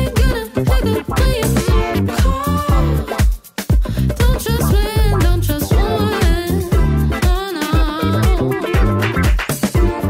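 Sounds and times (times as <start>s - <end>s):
dance-pop music with heavy bass: 0.0s - 10.0s.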